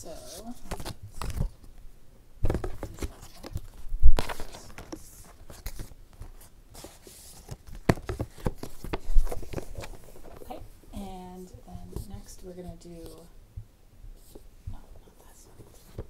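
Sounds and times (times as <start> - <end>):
paper rustling against cardboard: 2.5 - 10.6.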